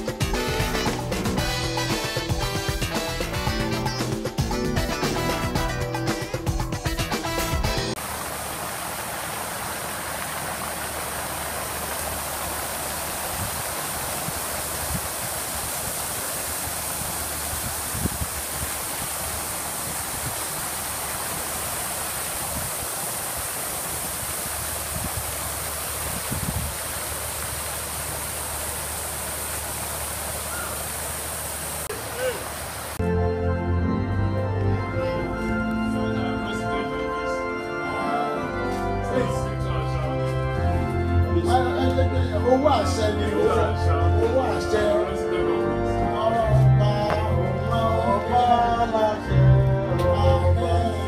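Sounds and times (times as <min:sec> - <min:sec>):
fountain water splashing: 0:00.0 - 0:04.2, 0:07.2 - 0:33.1.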